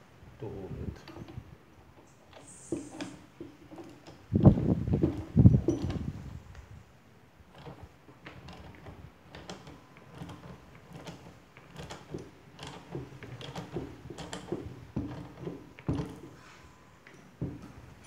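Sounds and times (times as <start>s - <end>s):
metallic clicks and knocks: 7.5s - 16.4s.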